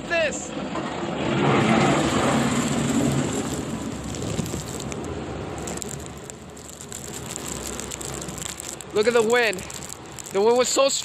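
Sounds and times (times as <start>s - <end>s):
plow blade pushing through slush: 0.5s - 11.0s
truck engine passing: 0.6s - 10.3s
steady hiss: 2.4s - 11.0s.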